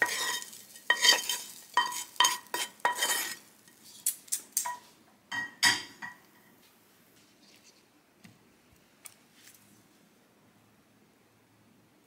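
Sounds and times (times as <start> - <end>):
wooden spatula scraping a pan: 0.0 - 4.0.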